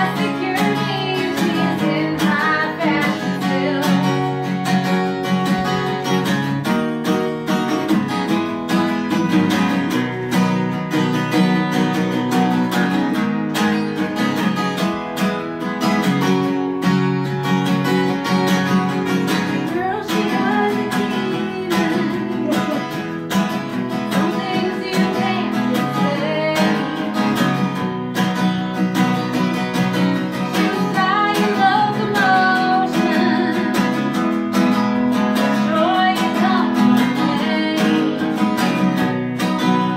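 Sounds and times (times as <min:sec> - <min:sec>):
woman singing: 0:00.0 - 0:05.9, 0:19.4 - 0:27.5, 0:30.4 - 0:34.3, 0:35.4 - 0:38.9
strummed acoustic guitar: 0:00.0 - 0:39.9.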